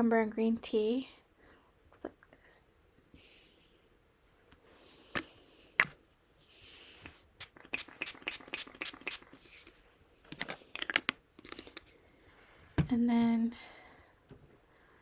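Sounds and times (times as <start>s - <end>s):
hands patting face: 6.6s - 9.7s.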